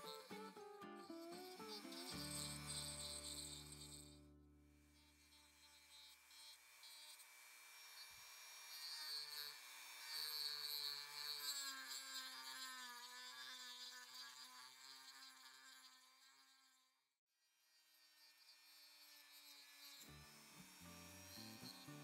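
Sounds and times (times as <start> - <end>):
rotary tool whining against wood: 0.0 - 16.9, 17.8 - 22.0.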